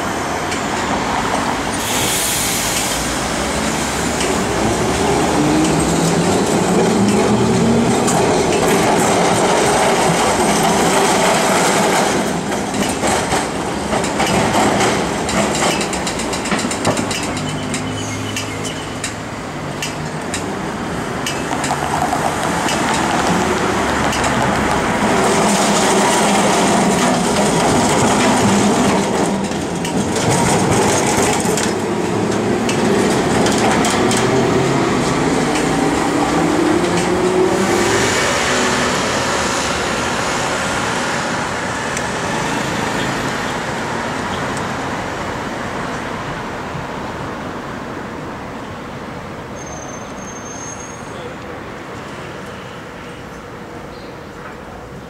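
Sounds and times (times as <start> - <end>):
tram running on rails: 0.0 - 55.0.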